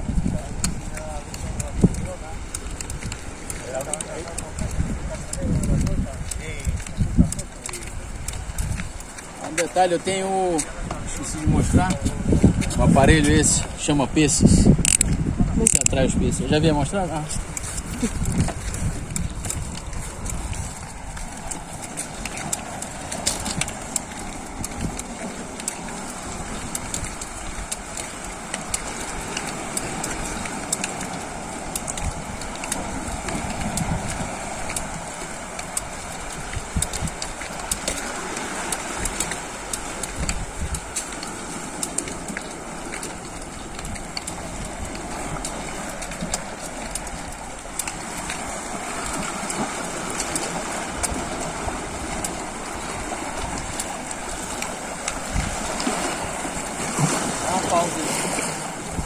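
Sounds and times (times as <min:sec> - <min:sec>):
sea and wind rushing: 0:00.0 - 0:59.0
footsteps on rock: 0:00.2 - 0:13.8, 0:14.7 - 0:58.6
gear rattling: 0:16.6 - 0:55.4.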